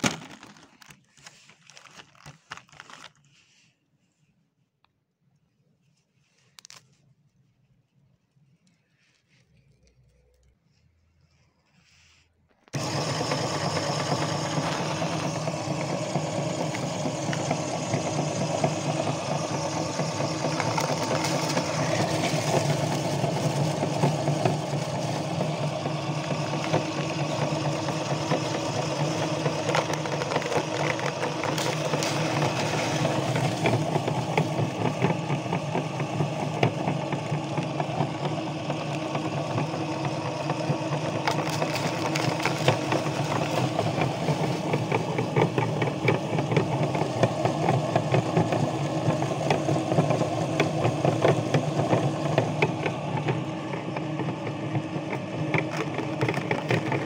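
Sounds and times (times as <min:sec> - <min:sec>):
meat grinder humming and crackling: 0:12.7 - 0:57.0.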